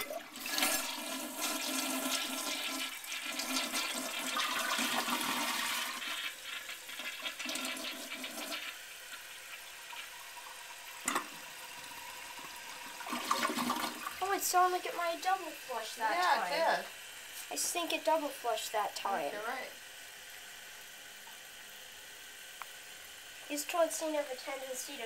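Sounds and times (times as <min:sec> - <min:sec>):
fill valve hissing: 0:00.0 - 0:19.4
toilet flushing: 0:00.0 - 0:19.4
toilet valve click: 0:11.0 - 0:11.4.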